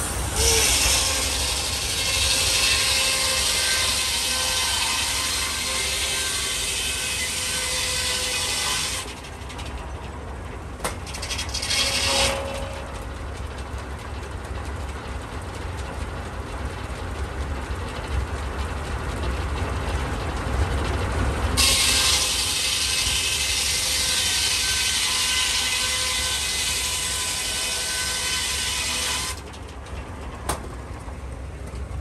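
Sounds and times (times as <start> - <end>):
circular saw ripping through timber: 0.0 - 9.3, 11.0 - 13.0, 21.6 - 29.5.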